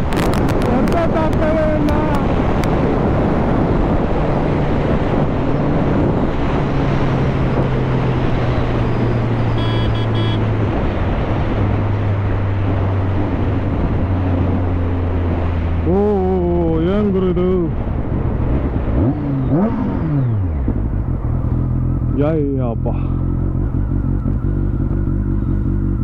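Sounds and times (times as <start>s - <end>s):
wind rush: 0.0s - 9.6s, 10.4s - 21.7s
motorcycle engine humming: 0.0s - 26.0s
short high beeps: 9.0s - 10.4s.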